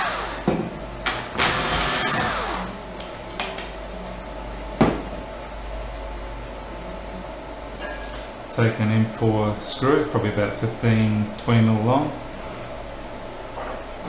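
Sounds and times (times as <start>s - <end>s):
cordless drill boring: 0.0s - 0.4s, 1.4s - 2.7s.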